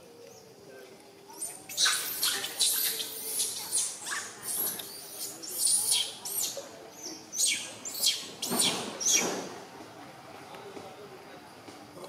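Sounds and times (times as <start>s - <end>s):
high-pitched animal squeaks: 1.4s - 9.3s.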